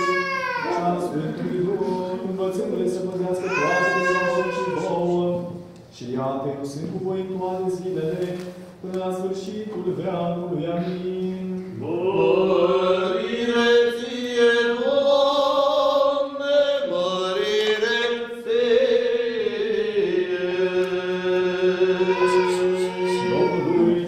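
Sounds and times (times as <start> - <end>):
person chanting melody: 20.9 - 24.0.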